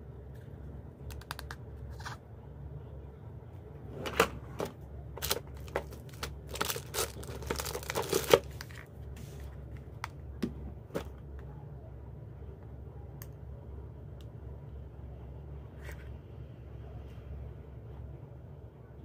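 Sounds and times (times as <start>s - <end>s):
hands handling plastic objects: 0.3s - 2.2s, 4.6s - 11.5s.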